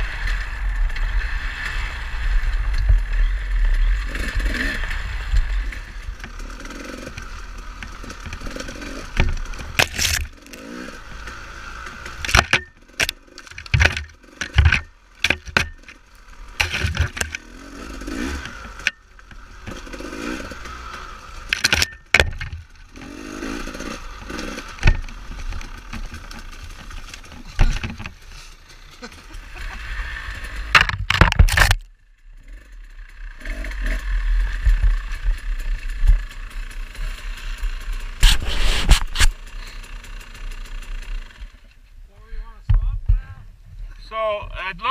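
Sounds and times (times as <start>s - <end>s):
dirt bike engine revving: 0.0s - 30.9s, 31.5s - 41.7s
knocks and rattles from bumps: 11.9s - 17.4s, 21.4s - 23.1s, 24.2s - 29.2s, 30.6s - 31.9s.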